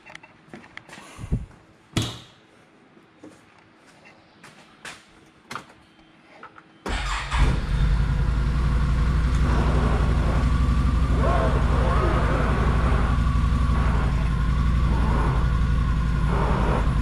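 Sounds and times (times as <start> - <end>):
engine starting and running: 6.8 - 17.0.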